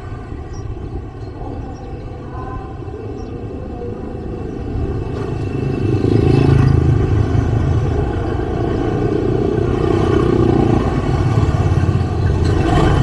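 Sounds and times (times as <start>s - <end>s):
motor scooters riding past: 2.9s - 13.0s.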